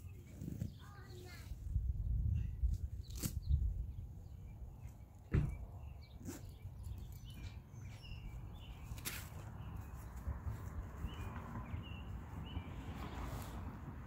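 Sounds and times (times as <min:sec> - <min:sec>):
small birds chirping: 0:00.0 - 0:13.6
dull thumps and knocks: 0:05.3 - 0:05.6.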